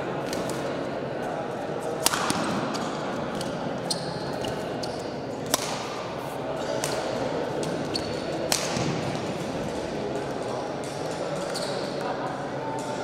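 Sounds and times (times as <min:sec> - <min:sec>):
murmur of indoor hall: 0:00.0 - 0:13.0
racket hitting shuttlecock: 0:02.0 - 0:03.6, 0:05.4 - 0:06.1, 0:06.8 - 0:09.4.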